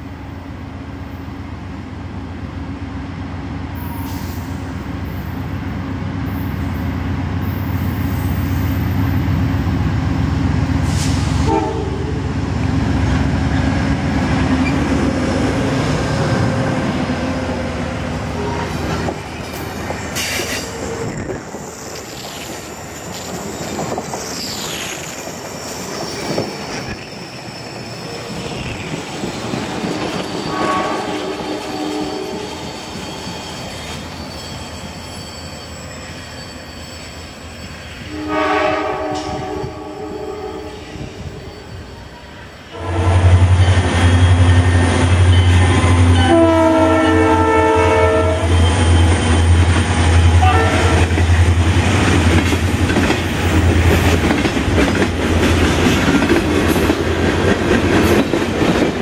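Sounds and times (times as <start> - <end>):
locomotive horn: 11.0 - 12.3, 18.3 - 19.0, 30.5 - 32.5, 38.1 - 41.0, 42.7 - 49.2, 50.3 - 51.2
wheel squeals: 19.4 - 30.6, 31.7 - 38.1
rail clatter: 48.6 - 59.0.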